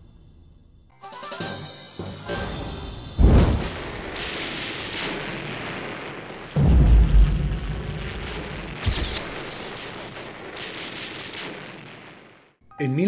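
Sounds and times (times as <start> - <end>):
deep boom with low rumble: 3.2 - 12.1.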